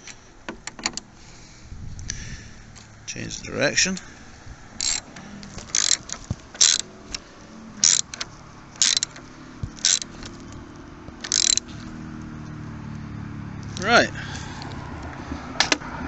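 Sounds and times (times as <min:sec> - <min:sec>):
socket ratchet clicking: 0:04.8 - 0:07.2, 0:07.8 - 0:10.6, 0:11.2 - 0:11.7.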